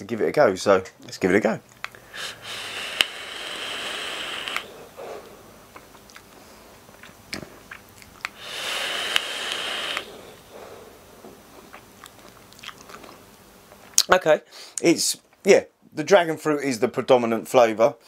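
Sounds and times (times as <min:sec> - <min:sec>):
person breathing out: 0:02.0 - 0:05.6, 0:08.4 - 0:11.2
vape hissing and sizzling: 0:02.1 - 0:05.4, 0:08.3 - 0:10.6.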